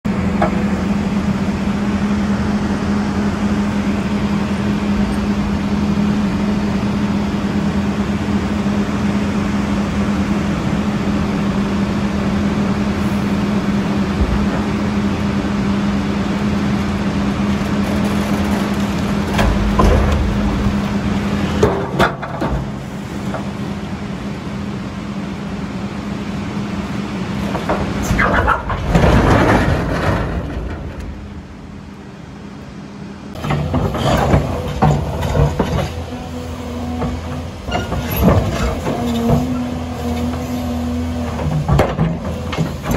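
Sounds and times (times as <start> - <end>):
diesel truck engine running: 0.0 - 42.9
boulders crashing onto ground: 17.8 - 22.7, 27.6 - 31.2.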